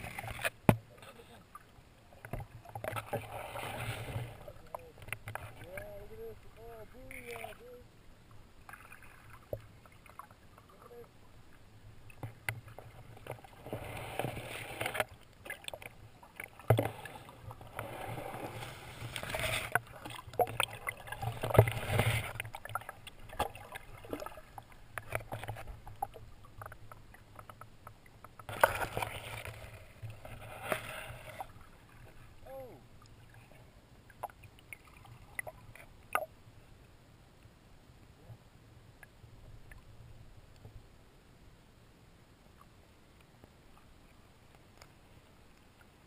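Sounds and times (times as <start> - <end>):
muffled rushing water underwater: 0.0 - 46.0.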